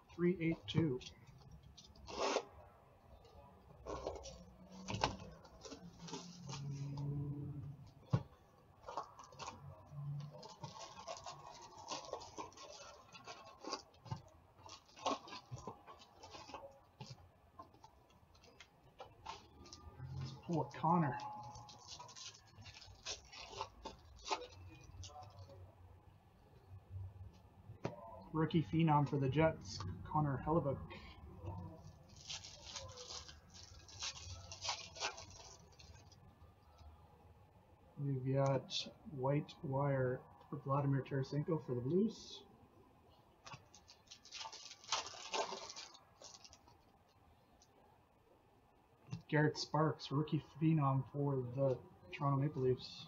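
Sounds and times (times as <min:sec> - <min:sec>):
cards rustling in hands: 0:08.8 - 0:25.6, 0:31.9 - 0:36.2, 0:43.5 - 0:46.9
foil wrappers crinkling and tearing: 0:10.4 - 0:17.1, 0:18.3 - 0:25.4, 0:31.8 - 0:36.2, 0:43.5 - 0:46.9.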